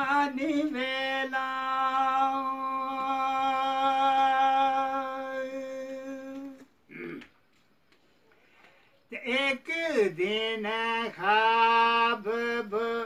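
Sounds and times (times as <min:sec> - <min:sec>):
man singing a long note: 0:00.0 - 0:06.6.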